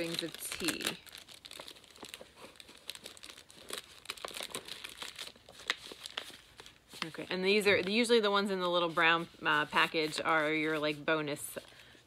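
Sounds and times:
packaging crinkling: 0.0s - 8.2s.

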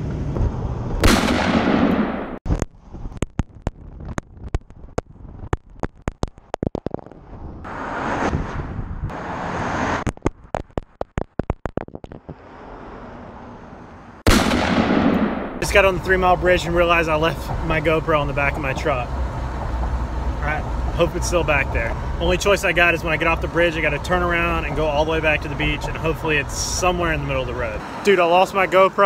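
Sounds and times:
wind and road noise: 0.0s - 29.0s
camera knocking on asphalt: 10.1s - 12.4s.

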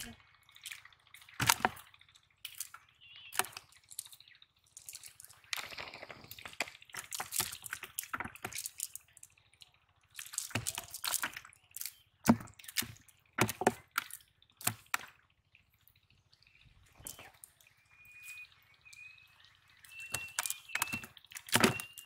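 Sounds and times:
water dripping and splashing: 0.0s - 22.0s
wet slaps and squelches: 0.6s - 4.2s.

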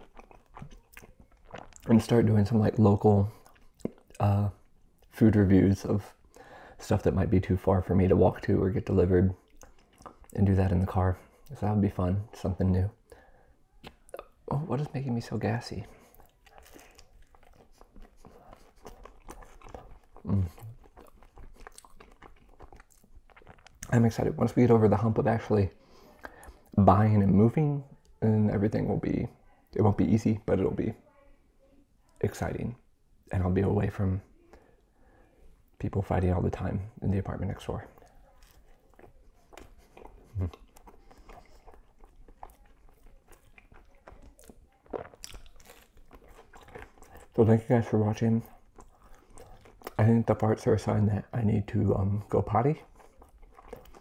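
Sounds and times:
wet clicks and crunches: 0.0s - 2.2s, 16.2s - 24.4s, 37.7s - 50.5s
man chewing food: 0.0s - 5.2s, 9.0s - 11.6s, 12.2s - 26.8s, 36.5s - 54.0s.

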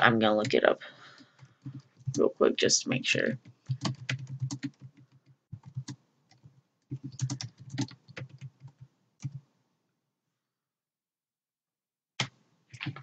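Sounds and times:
keyboard typing: 1.2s - 2.2s, 3.3s - 9.5s, 12.2s - 13.0s.

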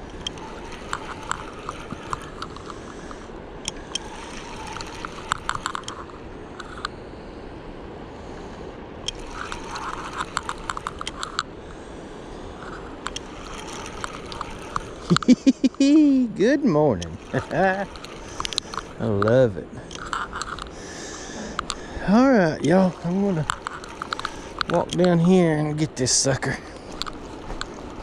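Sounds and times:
fishing reel clicking: 0.0s - 6.9s, 9.0s - 16.2s, 16.9s - 28.0s
steady rushing background: 8.1s - 28.0s.

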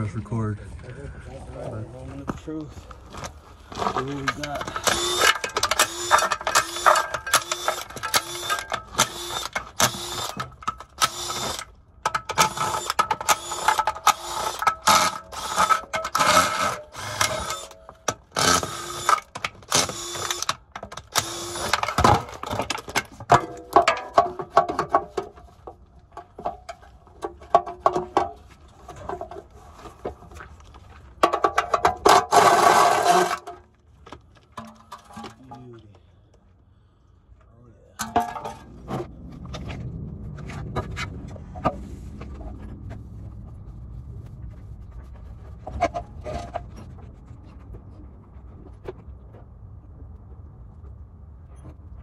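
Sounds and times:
impact wrench hammering: 4.8s - 22.3s.

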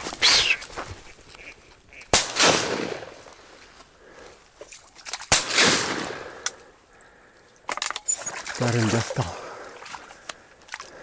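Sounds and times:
shotgun shots: 2.1s - 3.2s, 5.3s - 6.3s.

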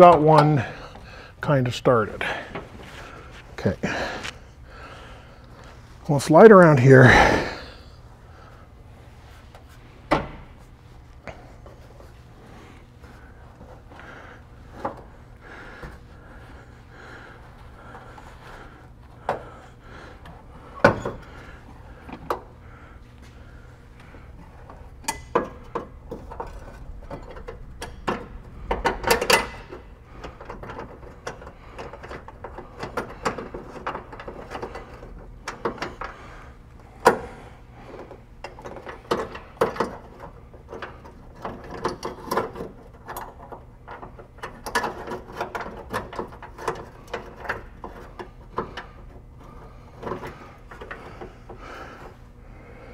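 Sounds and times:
small metal clicks and clunks: 24.7s - 36.2s, 38.0s - 51.3s.

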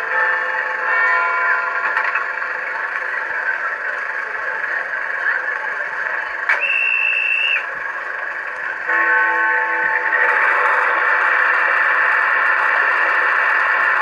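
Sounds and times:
tinny diesel engine idle: 0.0s - 14.0s
high whistle tone: 6.5s - 7.7s.

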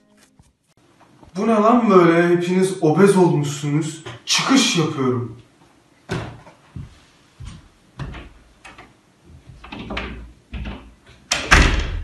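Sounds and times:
door opening and shutting: 9.5s - 12.0s.

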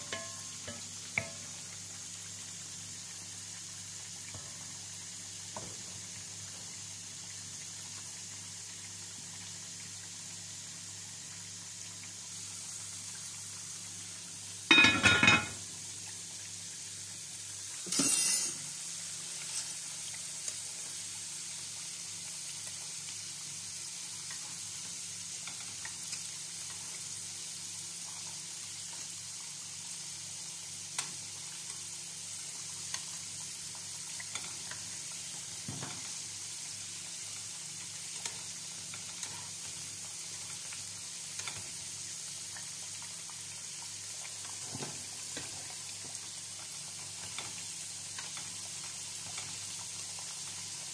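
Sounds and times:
potatoes sizzling in oil: 0.0s - 50.9s
metal lid clattering onto pot: 14.7s - 15.6s, 17.9s - 18.6s.

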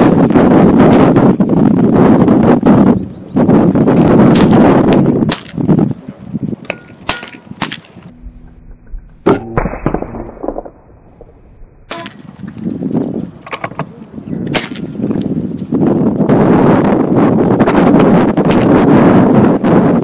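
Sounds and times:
air rifle shots: 5.3s - 5.7s, 6.7s - 8.0s, 14.4s - 15.0s, 18.4s - 18.8s.

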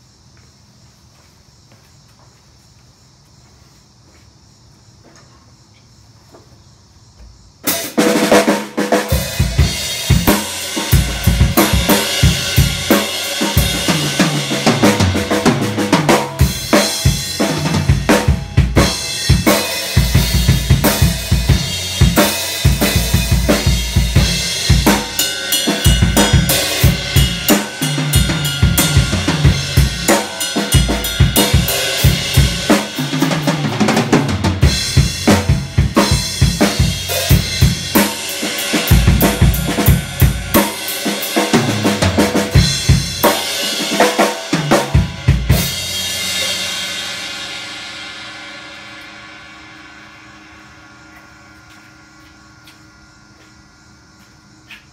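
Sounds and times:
drum kit groove: 7.6s - 54.9s.

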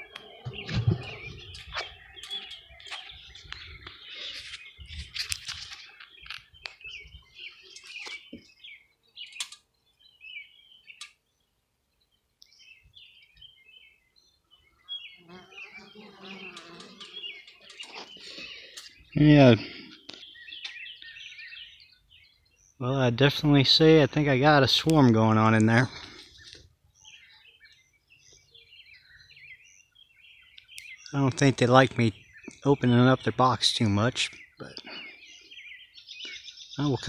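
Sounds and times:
small birds chirping: 0.0s - 37.0s
sharp clicks: 9.3s - 9.6s.

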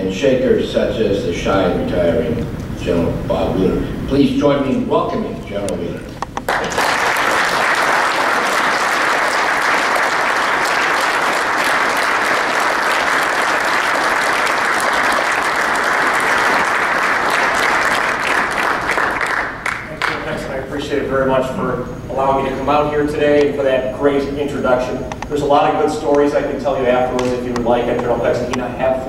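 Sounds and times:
audience applauding: 6.5s - 20.3s.

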